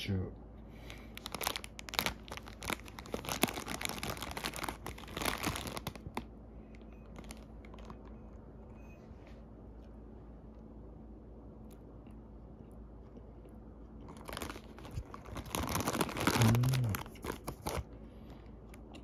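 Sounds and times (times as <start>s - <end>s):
plastic bag crinkling: 0.8s - 6.3s, 7.0s - 8.2s, 14.0s - 17.9s.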